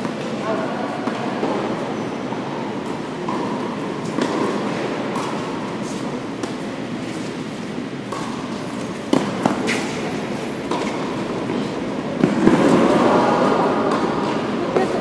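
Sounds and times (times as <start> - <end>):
tennis balls struck and bouncing: 1.0 - 15.0
murmur of voices: 9.2 - 15.0.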